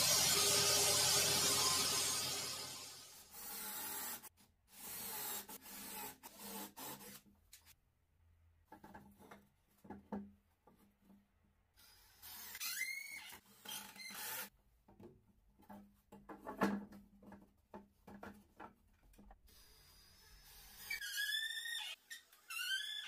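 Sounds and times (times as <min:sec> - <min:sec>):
scraping with rising squeal: 0:00.0 - 0:03.2.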